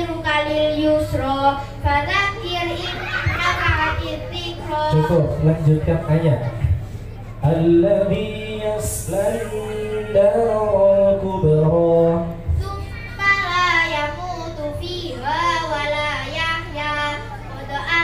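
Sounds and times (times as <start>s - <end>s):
girl chanting over loudspeaker: 0.0s - 5.2s, 12.4s - 18.0s.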